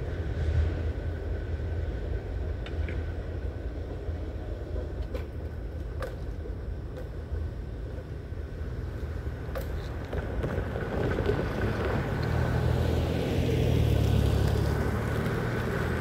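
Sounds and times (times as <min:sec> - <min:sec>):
freight train rumble: 0:00.0 - 0:12.4.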